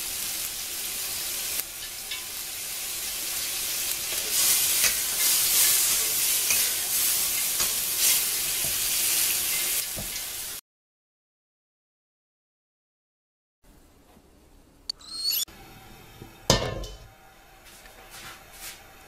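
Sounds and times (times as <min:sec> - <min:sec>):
food sizzling in a wok: 0:00.0 - 0:10.6, 0:15.5 - 0:19.0.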